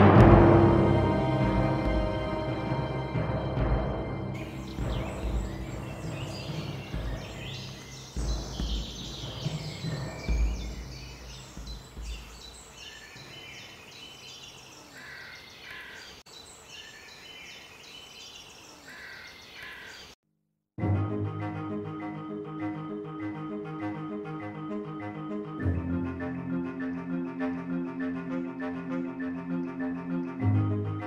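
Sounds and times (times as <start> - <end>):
deep thuds: 4.4 - 12.8
birds chirping: 4.4 - 20.2.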